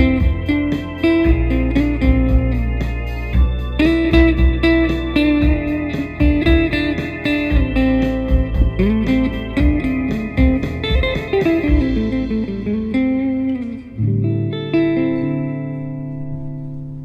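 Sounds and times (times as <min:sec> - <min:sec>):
electric guitar jazz melody: 0:00.0 - 0:17.0.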